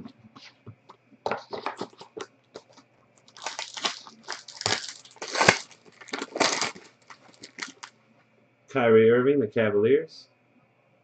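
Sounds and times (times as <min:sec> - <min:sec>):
foil wrapper crinkling and tearing: 0:01.8 - 0:07.9.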